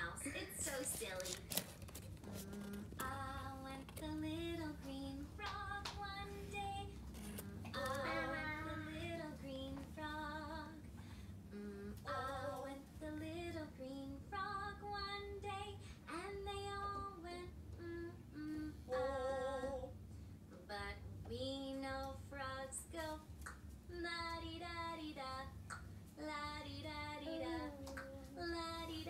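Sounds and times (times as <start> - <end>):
woman singing a children's song: 0.0 - 1.6, 2.5 - 7.0, 7.6 - 10.8, 11.6 - 29.0.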